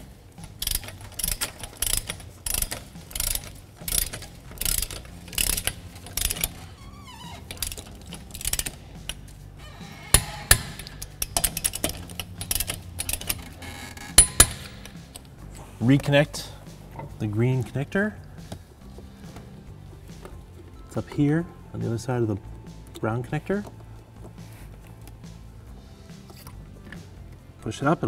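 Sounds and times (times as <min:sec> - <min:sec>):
ratchet wrench clicking: 0:00.4 - 0:09.4, 0:10.1 - 0:15.4.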